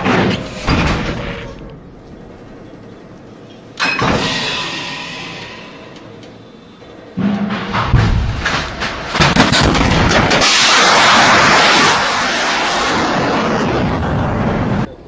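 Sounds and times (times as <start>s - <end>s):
loud blast: 7.2s - 14.9s
rocket exhaust roaring: 9.5s - 15.0s.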